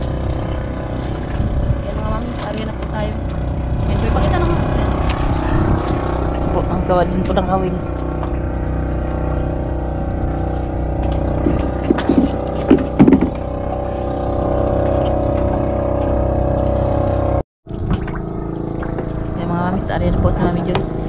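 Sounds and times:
motorboat engine running: 0:00.0 - 0:21.0
sharp knocks: 0:11.4 - 0:13.5.

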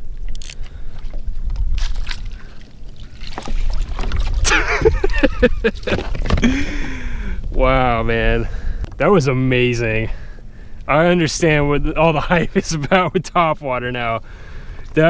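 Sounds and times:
wind rumble on microphone: 0:00.0 - 0:13.0
water splashing: 0:00.7 - 0:09.3.

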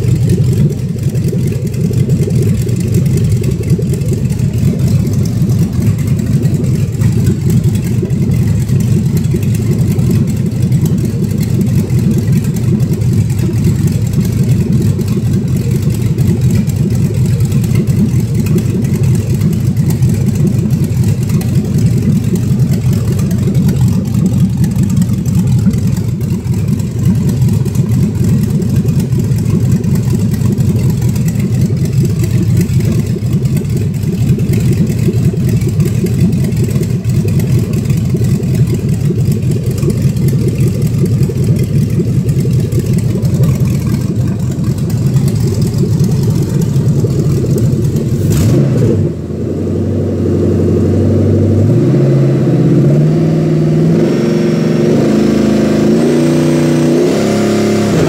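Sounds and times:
engine running rough: 0:00.0 - 0:58.0
engine revving: 0:34.2 - 0:58.0.

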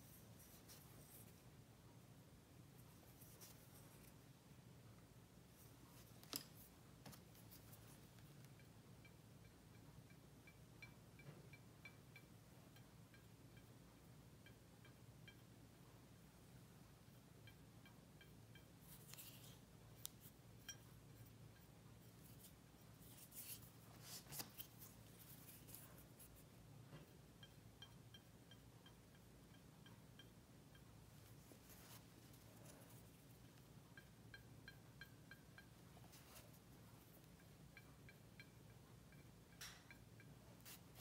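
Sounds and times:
rubbing and scratching on porcelain: 0:18.5 - 0:26.6.

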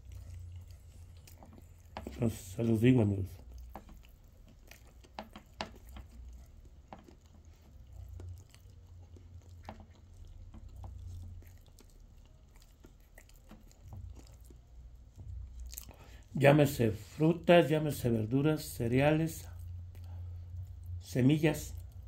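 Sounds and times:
person chewing: 0:00.0 - 0:16.4, 0:19.0 - 0:21.0, 0:21.6 - 0:22.0
low hum: 0:18.1 - 0:22.0.

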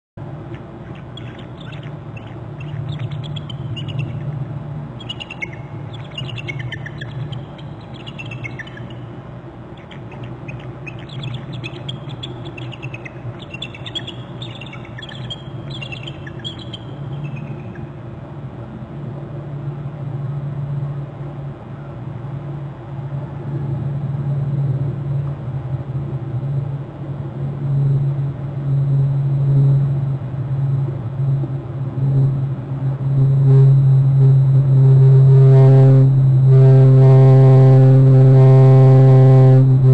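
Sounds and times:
steady low hum: 0:00.2 - 0:39.9
eagles trilling: 0:00.5 - 0:18.0.

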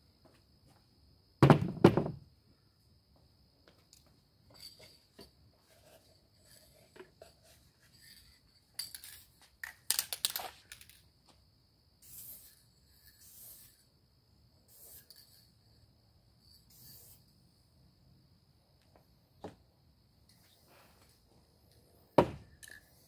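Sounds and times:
aerosol spray hissing: 0:12.0 - 0:13.9, 0:14.7 - 0:15.4, 0:16.7 - 0:17.3.

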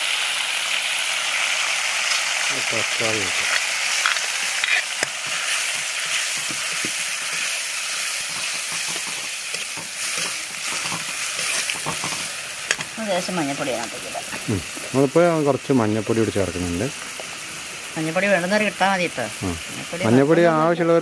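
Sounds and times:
vegetables sizzling in hot oil: 0:00.0 - 0:21.0
ladle scraping and tapping pan: 0:03.4 - 0:07.6, 0:08.2 - 0:12.9.

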